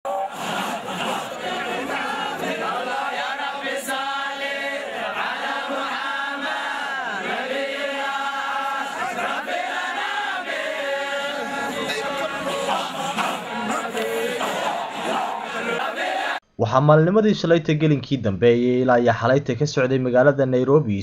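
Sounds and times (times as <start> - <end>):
men chanting in unison: 0.1 - 16.4.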